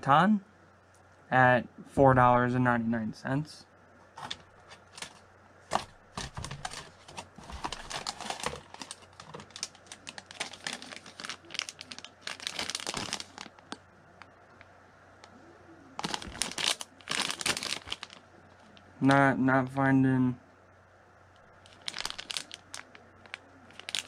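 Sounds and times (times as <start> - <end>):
plastic packaging crinkling: 4.2 - 14.3, 16.0 - 18.8, 21.5 - 24.0.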